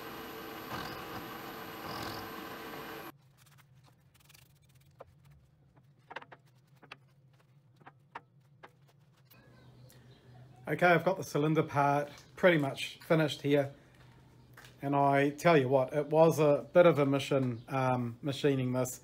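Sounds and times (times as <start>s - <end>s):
milling machine cutting metal: 0.0s - 3.1s.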